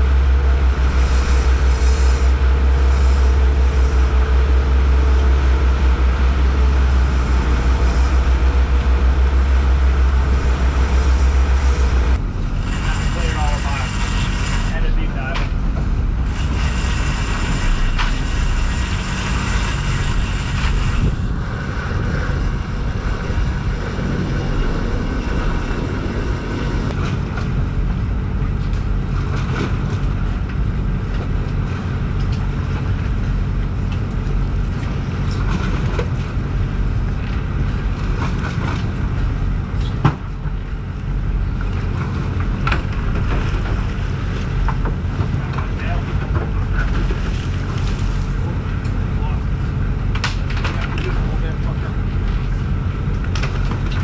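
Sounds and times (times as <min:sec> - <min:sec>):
boat engine low hum: 0:00.0 - 0:54.0
water wash: 0:00.0 - 0:54.0
wind: 0:00.0 - 0:54.0.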